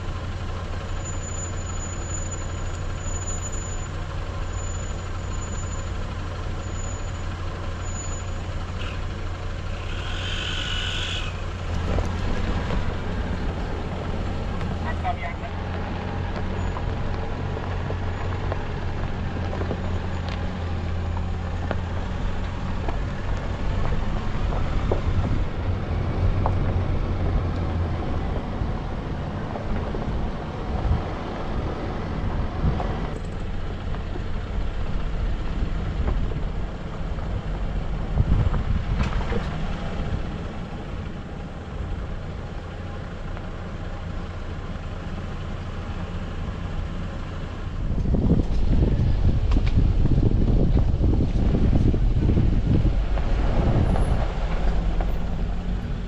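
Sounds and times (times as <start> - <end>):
vehicle engine running: 0.0 - 56.0
tyres on gravel: 0.2 - 31.7.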